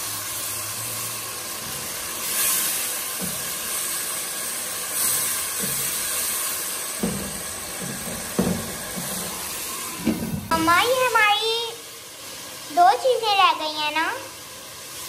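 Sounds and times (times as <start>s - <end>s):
chicken sizzling in a pot: 0.0s - 15.0s
soft knocks: 7.0s - 9.4s.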